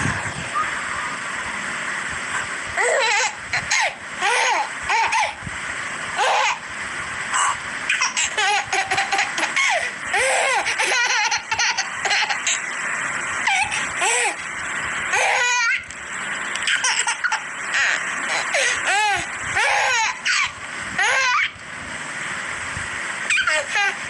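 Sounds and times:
baby giggling: 2.8s - 5.4s, 7.4s - 12.6s, 16.6s - 21.5s, 23.3s - 24.0s.

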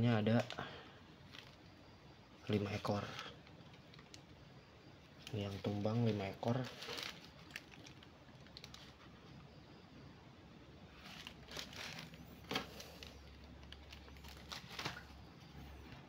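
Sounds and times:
low steady hum: 0.0s - 16.0s
plastic bags crinkling: 5.2s - 9.0s, 11.0s - 15.2s.

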